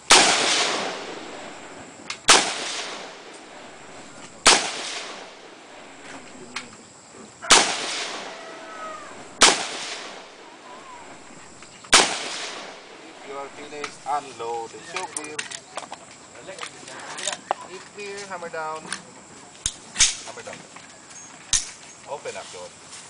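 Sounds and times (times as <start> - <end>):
rifle shots with echo: 0.1 - 6.6, 7.4 - 14.2.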